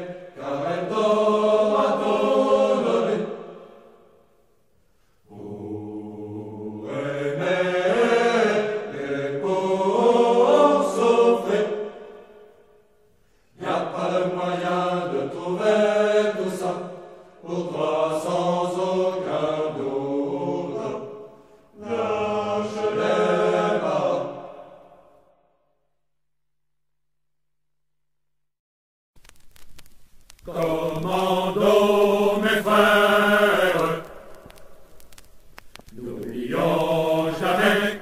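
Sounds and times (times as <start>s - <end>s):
choir chanting: 0.0s - 4.2s, 5.3s - 12.5s, 13.6s - 25.4s, 30.5s - 34.4s, 35.9s - 38.0s.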